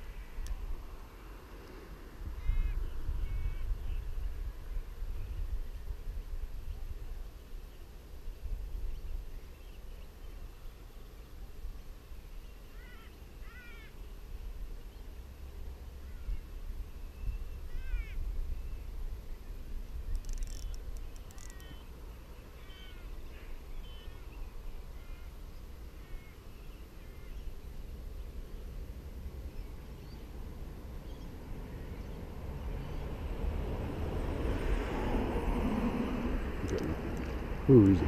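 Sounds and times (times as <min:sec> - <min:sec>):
wind rumble on microphone: 0:02.0 - 0:10.7, 0:15.9 - 0:22.0, 0:27.2 - 0:38.0
birds chirping: 0:19.4 - 0:28.7, 0:36.5 - 0:38.0.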